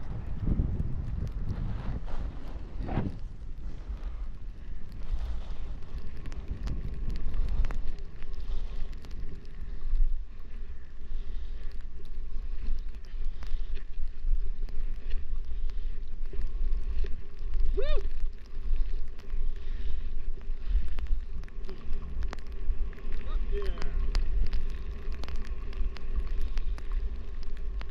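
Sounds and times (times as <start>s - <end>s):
wind buffeting microphone: 0.0s - 10.2s
skis scraping on snow: 1.4s - 4.3s, 5.0s - 6.5s
small clicks: 3.9s - 10.2s, 11.5s - 27.9s.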